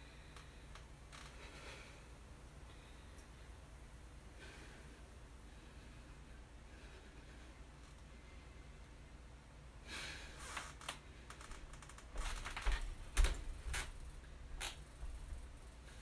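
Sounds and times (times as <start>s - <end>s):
person breathing hard: 0.0s - 3.7s, 4.3s - 8.8s, 9.8s - 10.8s.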